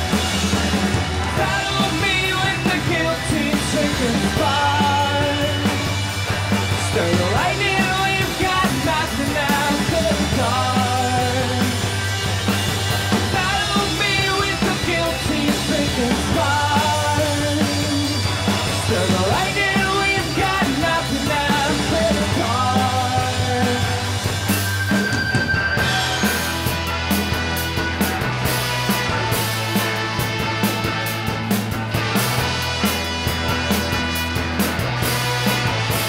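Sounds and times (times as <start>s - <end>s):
rock band playing live: 0.0s - 36.0s
person singing: 1.3s - 5.8s, 6.8s - 11.8s, 13.3s - 24.2s.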